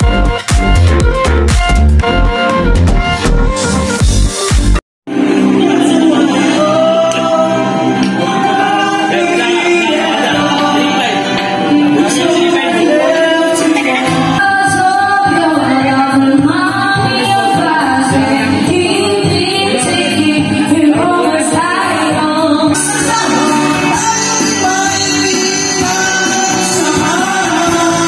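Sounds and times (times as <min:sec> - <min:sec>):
backing track with steady beat: 0:00.0 - 0:28.0
woman singing karaoke: 0:05.1 - 0:11.0, 0:11.6 - 0:28.0.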